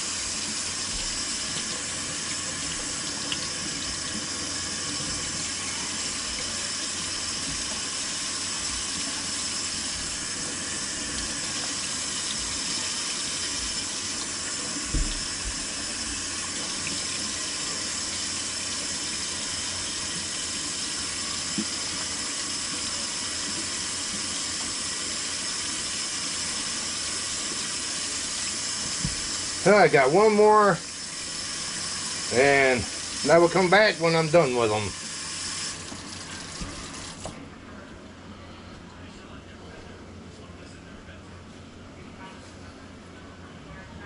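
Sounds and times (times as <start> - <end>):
tap running into sink: 0.3 - 9.5, 10.4 - 17.6, 21.4 - 22.1, 28.4 - 29.6, 35.3 - 37.4.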